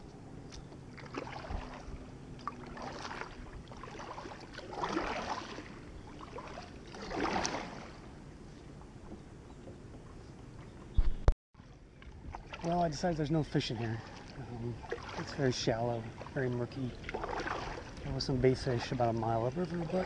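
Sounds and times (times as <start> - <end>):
paddle splashing in water: 0.8 - 8.1, 11.6 - 20.0.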